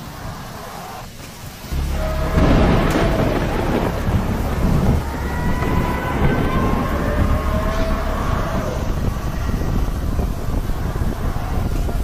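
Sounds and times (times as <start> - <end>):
heavy rain: 0.0 - 12.0
thunder crack and rumbling: 1.6 - 12.0.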